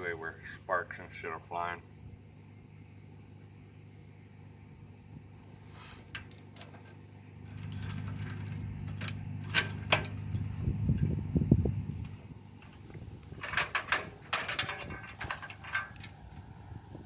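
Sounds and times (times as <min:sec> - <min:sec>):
low hum: 0:00.0 - 0:17.0
metal coupler clicking: 0:13.2 - 0:16.5
metal chains clinking: 0:13.4 - 0:16.2.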